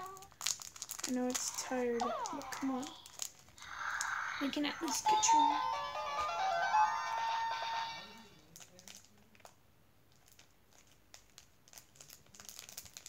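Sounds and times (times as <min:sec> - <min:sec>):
plastic clicks and crinkles: 0:00.0 - 0:04.1, 0:08.4 - 0:13.0
toy electronic tune: 0:05.0 - 0:08.3.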